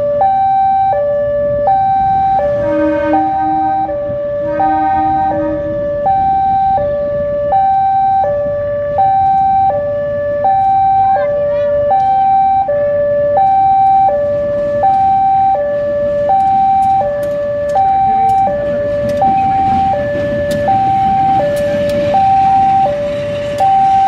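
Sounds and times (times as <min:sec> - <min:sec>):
diesel locomotive rumbling: 0:00.0 - 0:24.0
two-tone siren: 0:00.0 - 0:24.0
sharp clicks: 0:16.3 - 0:19.7.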